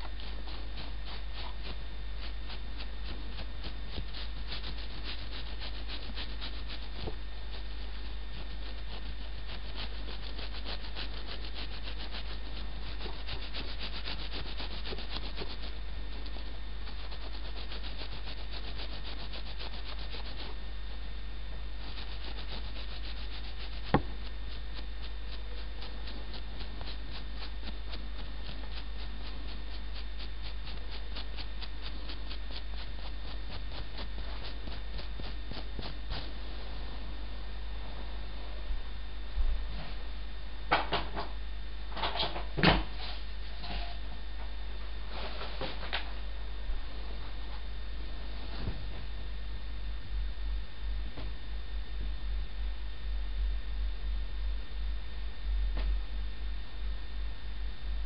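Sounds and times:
scratchy rubbing and crackling: 0.0s - 20.7s, 21.7s - 37.0s
low hum: 0.0s - 42.5s, 43.2s - 58.0s.

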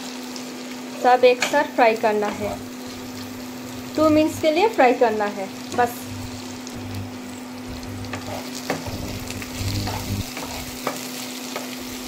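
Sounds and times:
vegetables sizzling in oil: 0.0s - 12.0s
spatula scraping pan: 2.2s - 11.8s
low hum: 2.3s - 10.8s.

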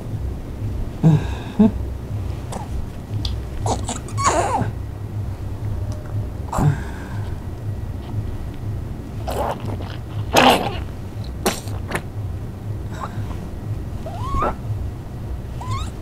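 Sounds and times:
steady low hum: 0.0s - 16.0s
baby coughing and whimpering: 3.6s - 4.7s, 10.3s - 11.8s.

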